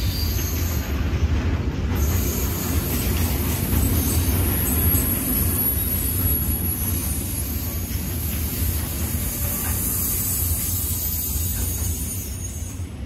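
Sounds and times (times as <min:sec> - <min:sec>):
train rumbling: 0:00.0 - 0:13.0.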